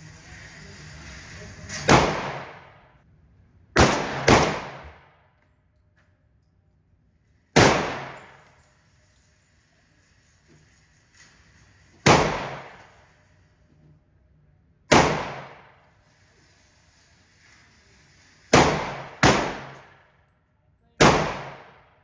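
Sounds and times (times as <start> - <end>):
gunshots ringing indoors: 1.7 - 3.0, 3.8 - 5.4, 7.5 - 8.6, 12.0 - 13.1, 14.9 - 15.9, 18.4 - 20.2, 21.0 - 22.0.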